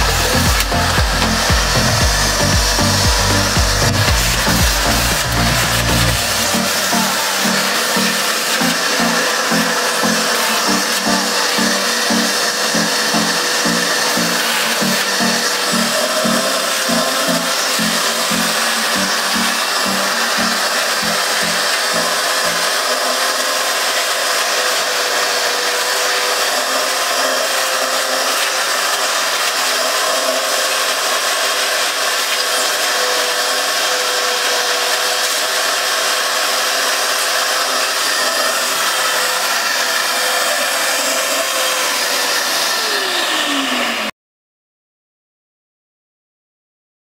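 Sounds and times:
shop vacuum running: 0:00.0 - 0:44.2.

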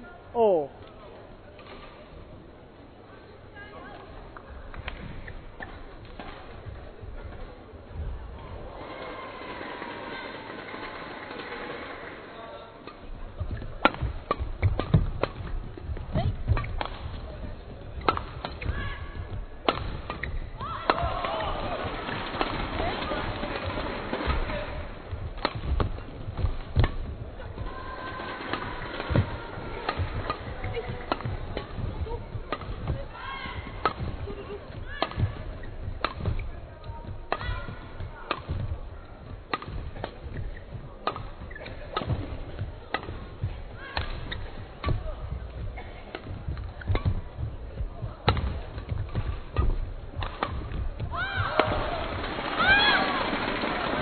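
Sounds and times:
players' footfalls: 0:13.1 - 0:54.0
racket striking shuttlecock: 0:13.5 - 0:17.2, 0:17.9 - 0:22.6, 0:25.3 - 0:27.1, 0:28.4 - 0:45.0, 0:48.2 - 0:51.8.

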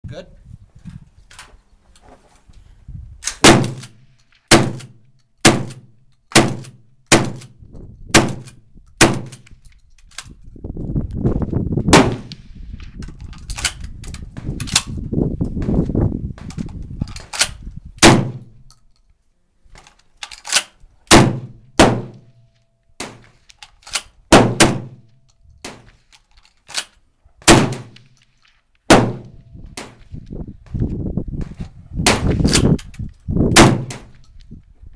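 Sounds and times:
shotgun shots: 0:03.3 - 0:07.5, 0:08.1 - 0:09.4, 0:11.9 - 0:12.4, 0:18.0 - 0:18.5, 0:21.1 - 0:22.3, 0:24.3 - 0:25.9, 0:27.4 - 0:28.2, 0:28.9 - 0:30.0, 0:33.6 - 0:34.1
shells loaded by hand: 0:08.4 - 0:10.5, 0:13.0 - 0:15.0, 0:16.4 - 0:17.7, 0:18.5 - 0:20.9, 0:22.3 - 0:24.2, 0:25.0 - 0:27.0.

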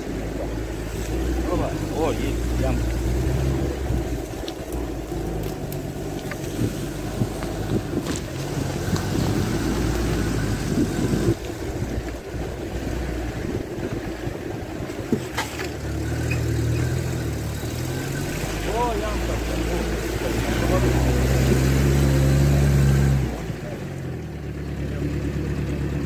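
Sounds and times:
vehicle engine low hum: 0:00.0 - 0:26.0.

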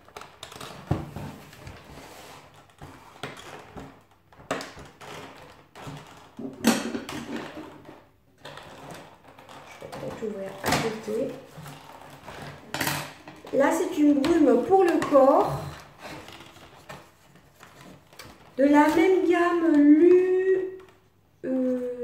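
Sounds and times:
cardboard tearing and rustling: 0:15.6 - 0:18.6.

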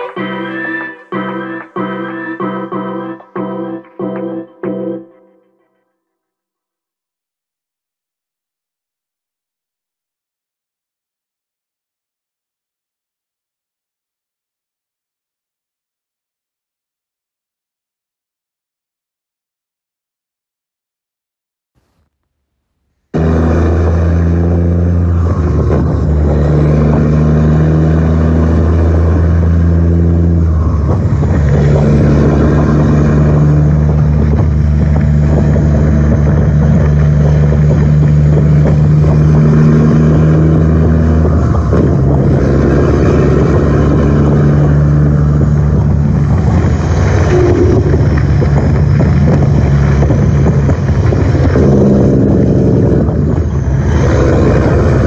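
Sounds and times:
diesel truck engine running: 0:23.2 - 0:55.0.

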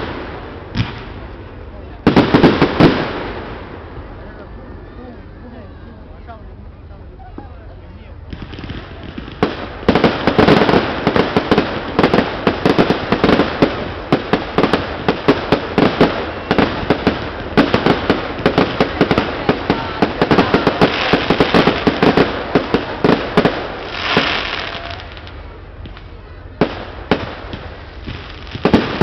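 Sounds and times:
fireworks bangs and crackles: 0:00.0 - 0:04.4, 0:08.2 - 0:29.0.

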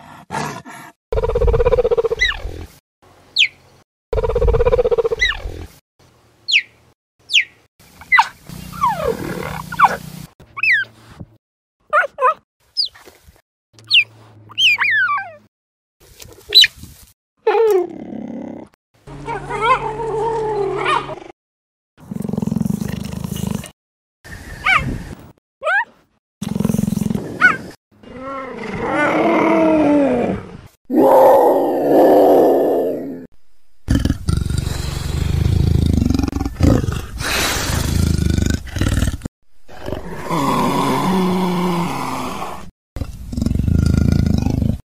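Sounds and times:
cheetah chirps and calls: 0:01.2 - 0:02.4, 0:03.4 - 0:03.6, 0:04.2 - 0:05.5, 0:06.5 - 0:06.7, 0:08.1 - 0:10.0, 0:10.6 - 0:10.9, 0:13.9 - 0:15.4
leopard growling: 0:26.4 - 0:44.8.

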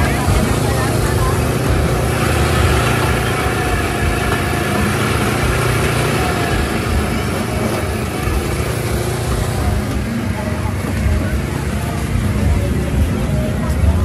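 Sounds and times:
loud street noise: 0:00.0 - 0:14.0
vehicle engines running: 0:00.0 - 0:14.0.

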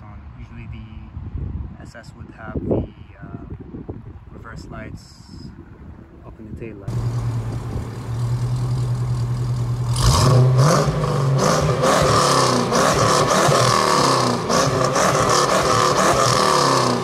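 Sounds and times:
car engine revving: 0:06.9 - 0:17.0.

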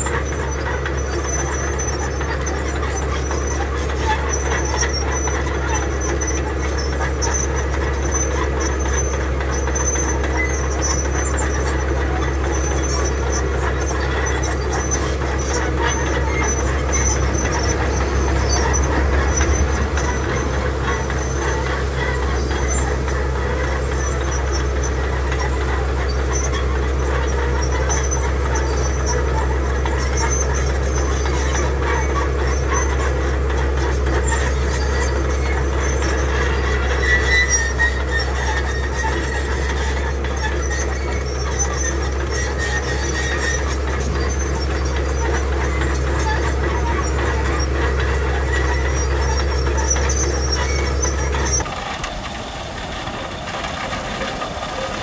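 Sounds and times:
bulldozer diesel engine under load: 0:00.0 - 0:55.0
clatter of tracks and stones: 0:00.0 - 0:55.0
faint clicking and rattling: 0:37.5 - 0:55.0
blade pushing gravel: 0:42.5 - 0:55.0.

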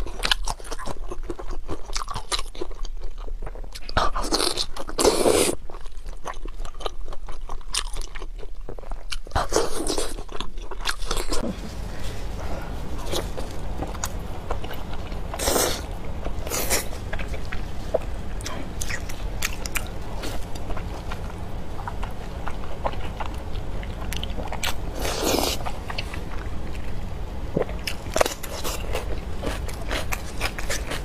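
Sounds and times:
faint low hum: 0:00.0 - 0:31.0
wet chewy bites and chewing: 0:13.0 - 0:31.0.

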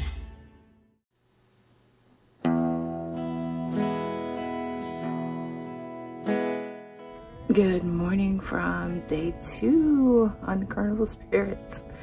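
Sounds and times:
background music with strums: 0:02.4 - 0:12.0.

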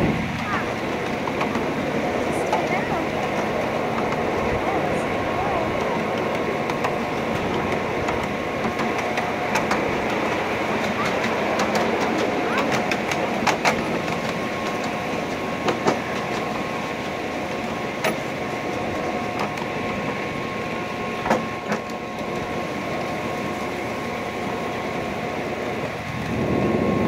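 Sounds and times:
garden train rumble: 0:00.0 - 0:27.0.

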